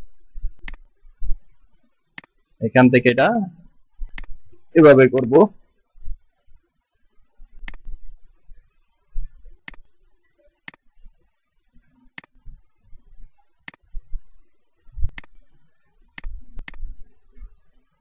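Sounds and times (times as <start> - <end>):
soft low thumps: 0.0 - 1.6, 13.9 - 14.3, 14.9 - 15.5
mouse button clicking: 5.2 - 5.4, 16.2 - 16.8.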